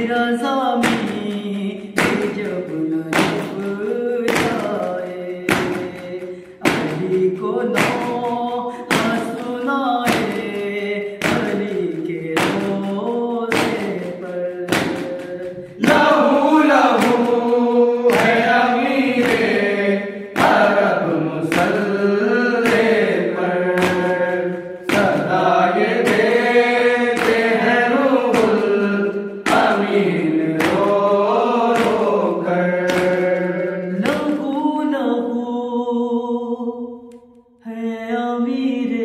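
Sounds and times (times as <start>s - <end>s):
men chanting in unison: 0.0s - 36.7s
hand slaps on chest: 18.1s - 19.6s.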